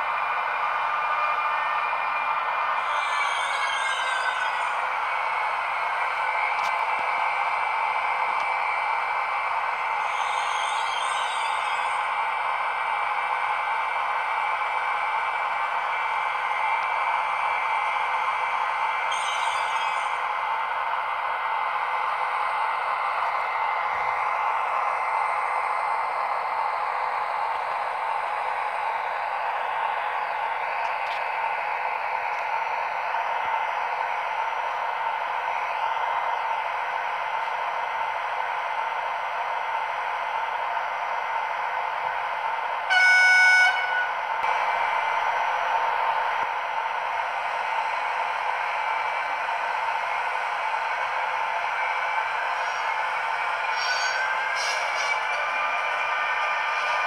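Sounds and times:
locomotive hum through small loudspeaker: 0:00.0 - 0:57.0
steady high tone: 0:01.6 - 0:08.2, 0:09.1 - 0:12.8, 0:17.2 - 0:29.2
faint high whine: 0:02.0 - 0:07.6, 0:08.6 - 0:12.4, 0:17.9 - 0:20.9.

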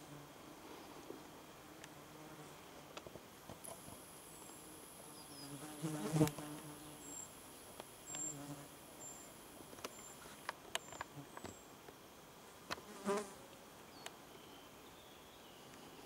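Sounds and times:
flying insect buzzing: 0:04.3 - 0:07.2.

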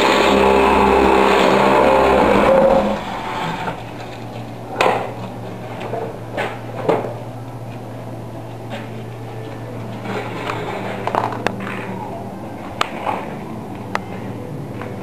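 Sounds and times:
machine motor running: 0:00.0 - 0:05.8
low steady hum: 0:00.0 - 0:15.0.

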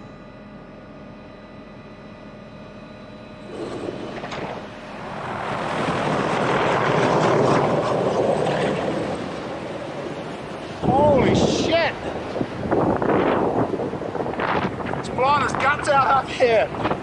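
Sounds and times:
helicopter drone: 0:00.0 - 0:17.0
helicopter rotors chopping: 0:03.4 - 0:17.0.

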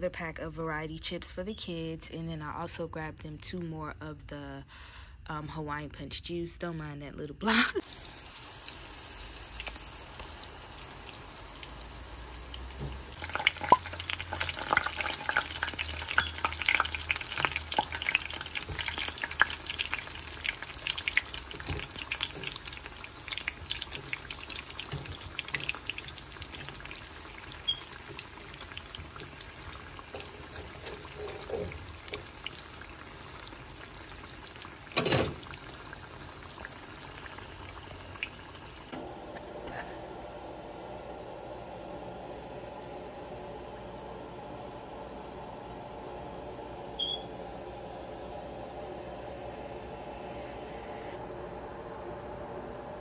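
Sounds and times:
food sizzling in hot oil: 0:07.8 - 0:38.9.

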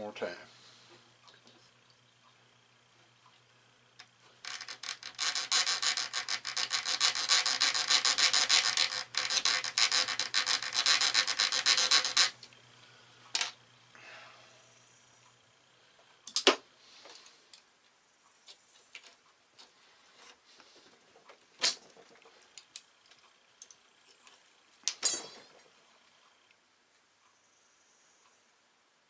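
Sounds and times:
hacksaw sawing metal: 0:04.7 - 0:12.4.

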